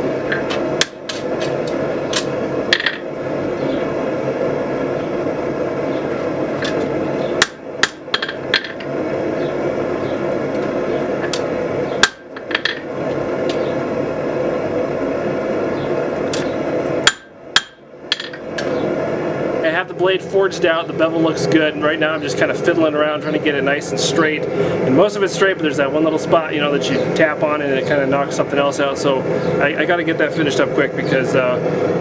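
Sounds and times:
steady running noise: 0.0s - 32.0s
hammer striking blade on anvil: 12.0s - 12.8s, 17.1s - 18.4s.

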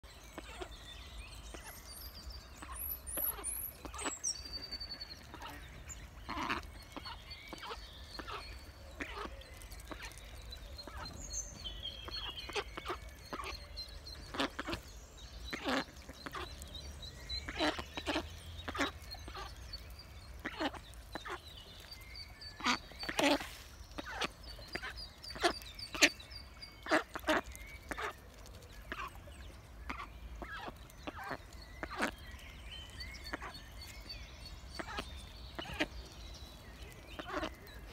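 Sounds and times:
songbird chirping: 0.0s - 37.9s
ducklings peeping: 0.4s - 37.9s.

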